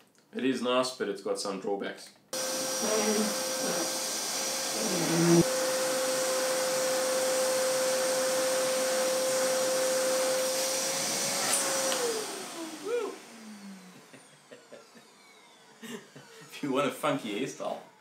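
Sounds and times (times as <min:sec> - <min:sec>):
motor winding down: 0:02.4 - 0:16.6
vacuum cleaner whining: 0:02.4 - 0:18.0.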